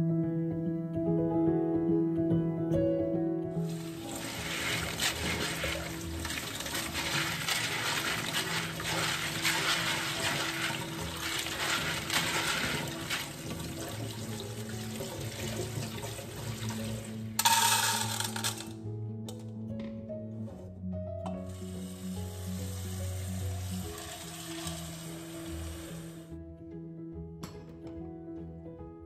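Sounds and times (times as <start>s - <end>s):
tap water splashing on beans: 3.7s - 18.6s
beans clattering into metal pot: 3.7s - 18.8s.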